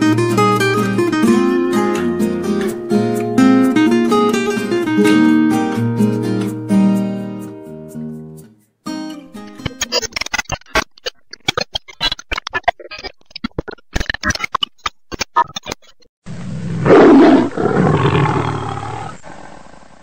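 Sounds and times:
rapid clicks and taps: 0:09.5 - 0:16.1
lion roaring: 0:16.4 - 0:20.0.

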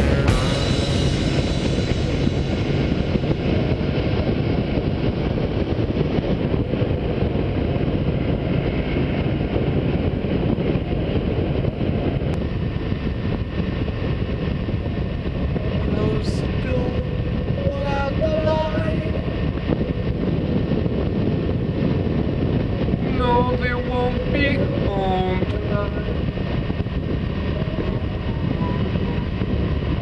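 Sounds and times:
motorcycle engine running: 0:00.0 - 0:07.1
wind rush: 0:00.0 - 0:30.0.

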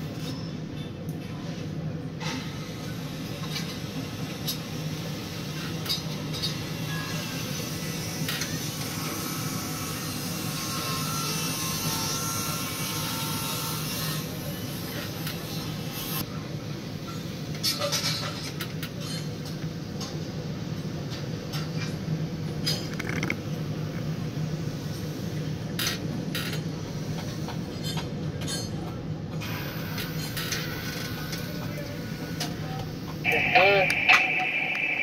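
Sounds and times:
low hum in crane cab: 0:13.8 - 0:35.0.

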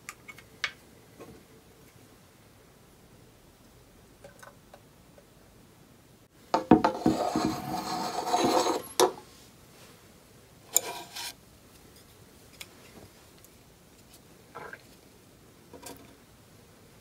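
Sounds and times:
rasping rub on wooden table: 0:06.8 - 0:08.9
chopsticks scraping wooden plate: 0:06.9 - 0:09.2, 0:10.7 - 0:11.4.

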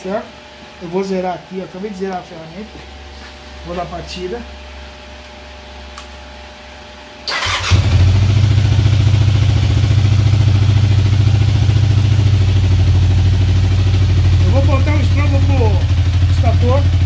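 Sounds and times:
motorcycle engine starting and idling: 0:07.3 - 0:17.0.

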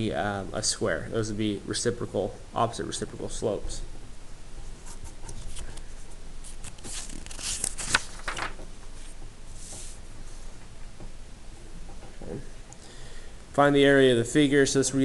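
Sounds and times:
paper rustling: 0:04.8 - 0:10.0.

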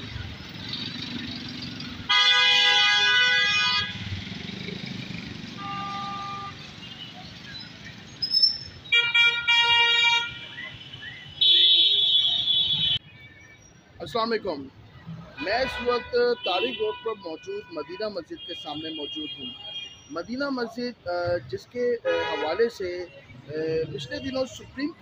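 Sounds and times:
road traffic: 0:00.0 - 0:25.0
vehicle horns honking: 0:02.0 - 0:04.2, 0:05.5 - 0:07.3, 0:08.6 - 0:13.7, 0:15.4 - 0:20.3, 0:22.0 - 0:24.7.

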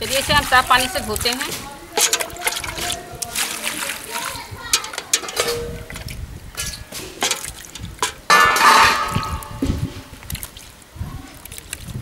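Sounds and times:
hands swishing in water: 0:00.0 - 0:08.3
water splashing: 0:00.0 - 0:12.0
steel plates clattering: 0:01.9 - 0:03.0, 0:04.6 - 0:10.1.

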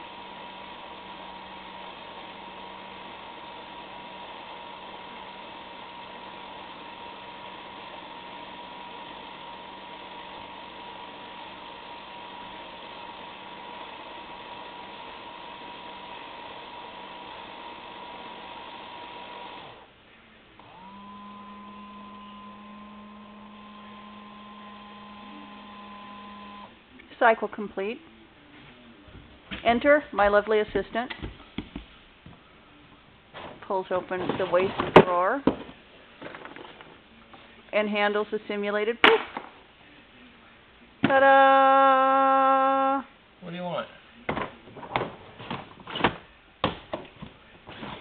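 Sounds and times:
motor hum and whine: 0:00.0 - 0:26.8.

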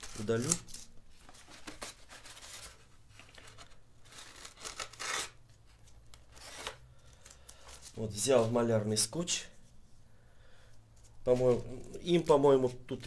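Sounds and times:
paper tearing: 0:00.0 - 0:00.9, 0:04.1 - 0:05.4.

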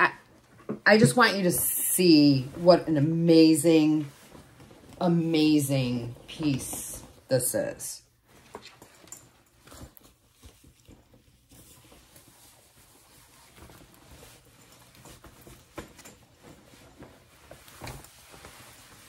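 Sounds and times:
leather jacket rustling: 0:03.9 - 0:07.3, 0:08.2 - 0:19.0.

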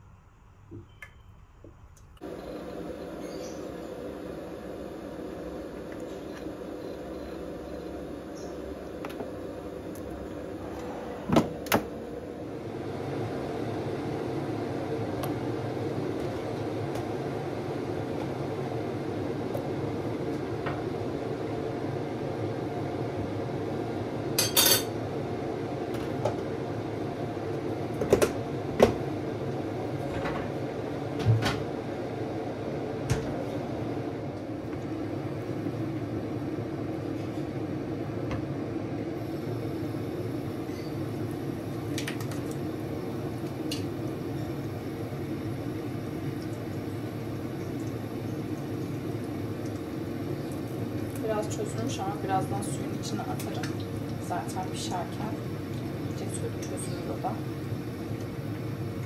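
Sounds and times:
air fryer fan humming: 0:00.0 - 0:59.0
pots and utensils clinking: 0:24.4 - 0:25.0.

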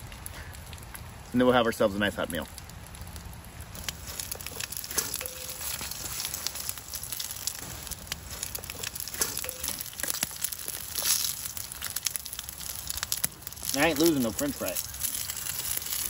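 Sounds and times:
fries sizzling in hot oil: 0:03.6 - 0:16.0.

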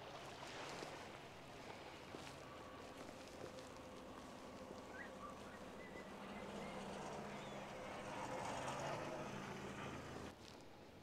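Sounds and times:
engine running: 0:01.6 - 0:10.3.

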